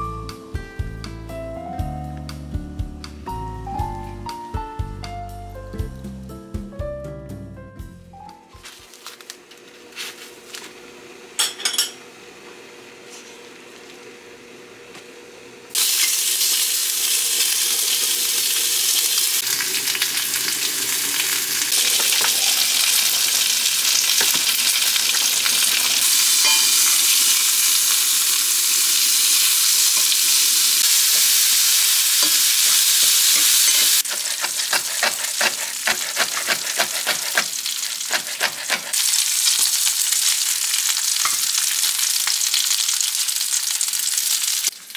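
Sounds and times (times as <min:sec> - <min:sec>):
meat sizzling in a skillet: 0:15.7 - 0:44.9
knife chopping on cutting board: 0:33.9 - 0:39.0.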